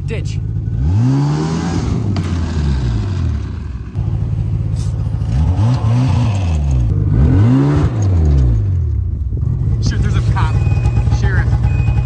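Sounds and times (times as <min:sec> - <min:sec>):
snowmobile engine revving: 0:00.6 - 0:03.9, 0:04.7 - 0:08.8.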